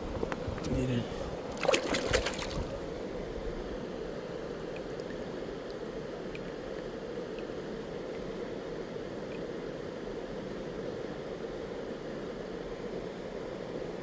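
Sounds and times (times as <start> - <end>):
river flowing over cobbles: 0.7 - 10.2.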